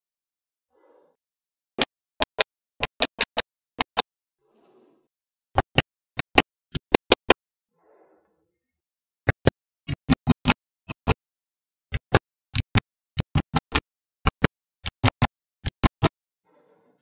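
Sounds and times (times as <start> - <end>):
magnetic balls clicking: 1.8 - 4.0, 5.6 - 7.4, 9.3 - 11.2, 11.9 - 16.2.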